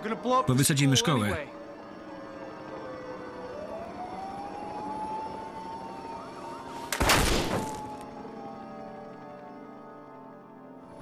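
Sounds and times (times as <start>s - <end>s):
emergency sirens wailing: 0.0s - 11.0s
loud gunshot: 7.0s - 7.8s.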